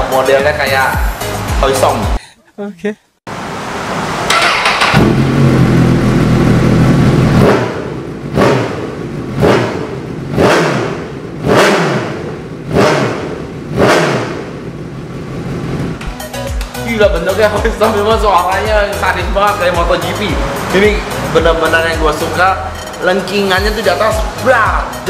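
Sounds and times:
motorcycle engine revving: 4.3s - 16.0s.

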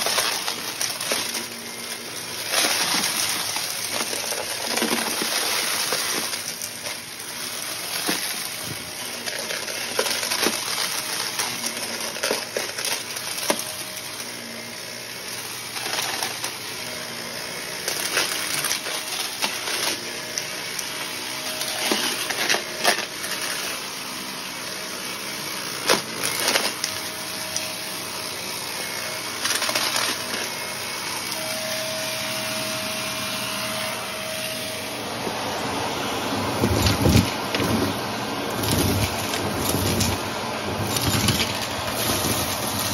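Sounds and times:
vacuum cleaner running: 0.0s - 42.9s
faint steady whistle: 31.3s - 35.0s.

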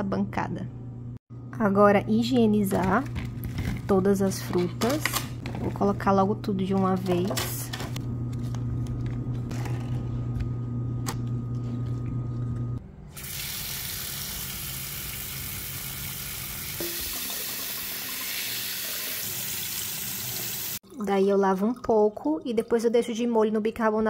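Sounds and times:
low hum: 5.5s - 13.2s.

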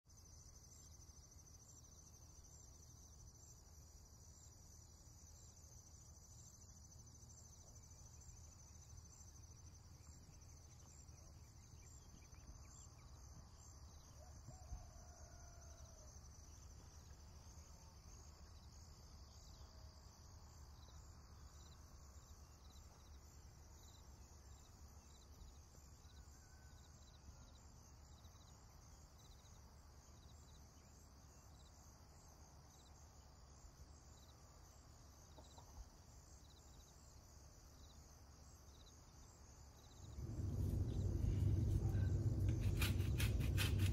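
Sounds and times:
insect chirring: 27.0s - 43.9s
low hum: 40.0s - 43.9s.

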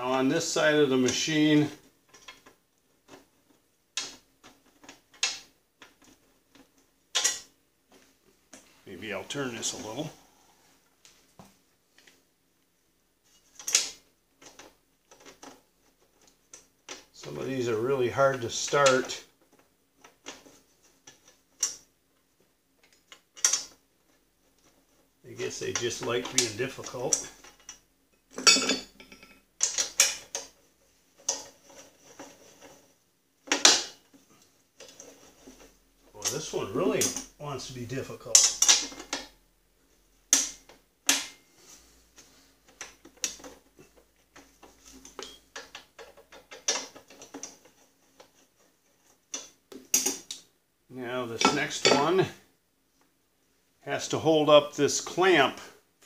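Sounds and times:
metal bolt clicking and scraping: 22.8s - 23.8s, 25.6s - 30.6s, 44.3s - 50.4s
tools clacking against metal: 25.6s - 30.6s, 38.3s - 39.4s, 42.7s - 48.7s, 51.4s - 52.2s.

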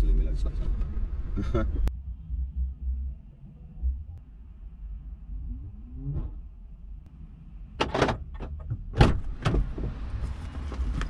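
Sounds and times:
low steady rumble: 0.0s - 11.0s
car doors clunking: 7.8s - 10.0s.

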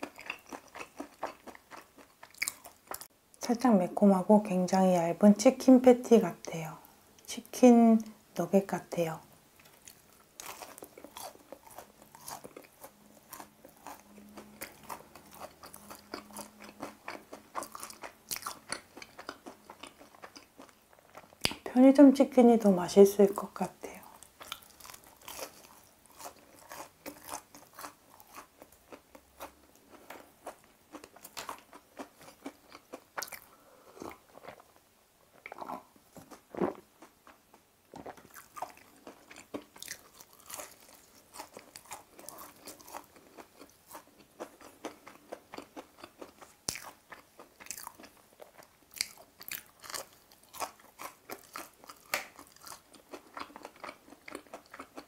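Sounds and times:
crispy fried chicken crunching: 0.0s - 3.1s, 9.7s - 21.6s, 24.0s - 34.7s, 37.9s - 55.0s.

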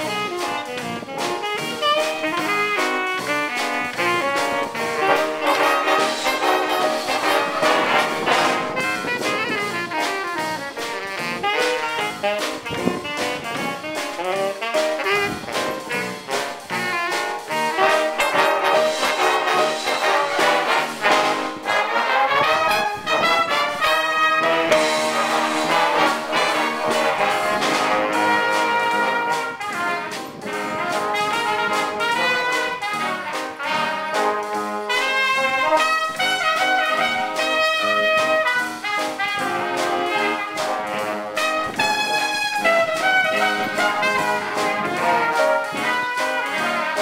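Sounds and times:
big band jazz: 0.0s - 47.0s
drum kit: 0.0s - 47.0s
saxophones: 0.0s - 47.0s
trumpets and trombones: 0.0s - 47.0s.

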